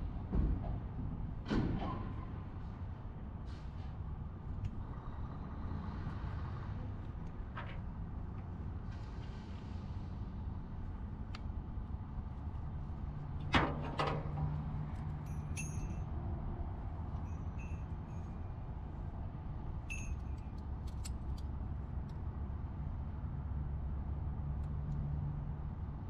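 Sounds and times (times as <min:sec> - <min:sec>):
metal ratchet buckle clinks: 0:15.2 - 0:16.1, 0:19.9 - 0:21.4.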